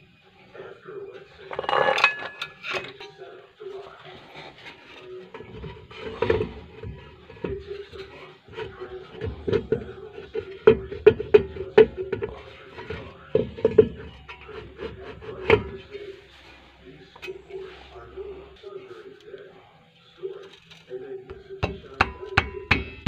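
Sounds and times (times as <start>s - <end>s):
metal knocks and scrapes: 1.2s - 18.1s.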